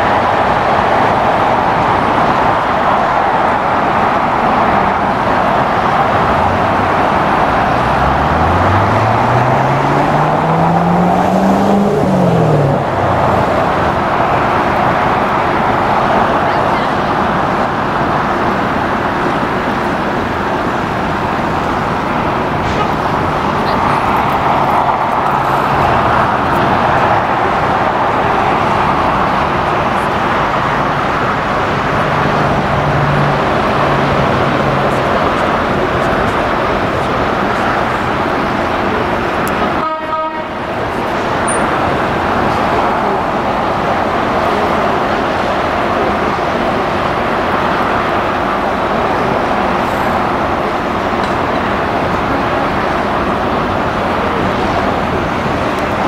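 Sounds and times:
road traffic roar: 0:00.0 - 0:56.0
vehicle engine accelerating: 0:04.2 - 0:39.8.

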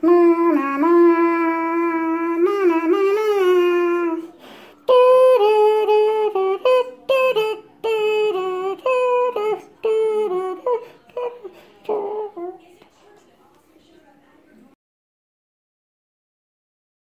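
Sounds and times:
wordless voice-like melody: 0:00.0 - 0:12.7.

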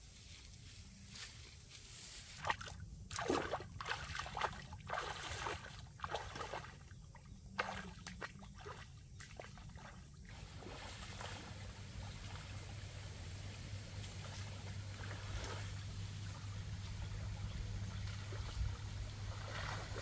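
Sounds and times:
bare feet splashing in water: 0:02.4 - 0:12.8, 0:13.6 - 0:20.0
faint steady hiss: 0:10.1 - 0:20.0.

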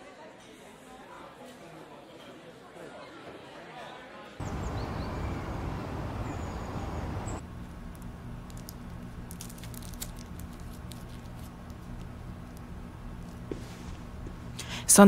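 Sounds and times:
steady rushing noise: 0:04.4 - 0:07.4
low room hum: 0:04.4 - 0:15.0
paper pages rustling: 0:08.5 - 0:12.6.

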